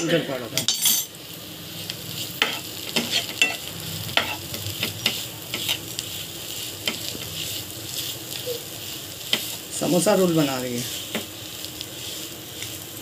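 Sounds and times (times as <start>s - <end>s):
potato filling sizzling in oil: 0.0s - 13.0s
spatula scraping and tapping pan: 2.4s - 3.6s, 4.2s - 5.8s, 6.8s - 7.3s, 9.2s - 9.6s, 11.0s - 11.4s.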